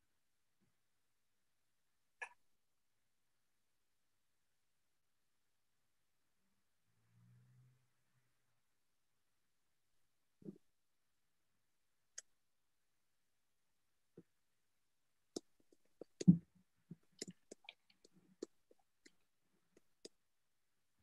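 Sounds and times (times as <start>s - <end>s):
small clicks and taps: 15.4s - 20.2s.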